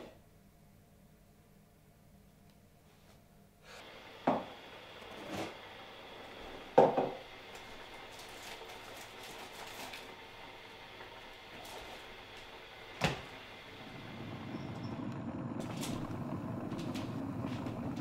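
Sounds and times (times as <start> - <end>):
steady hiss: 3.6 - 18.0.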